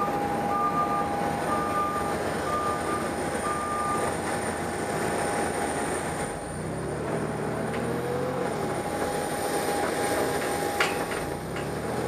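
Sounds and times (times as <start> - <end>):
short beeps: 0.0 - 4.2
jet engines idling: 0.0 - 12.0.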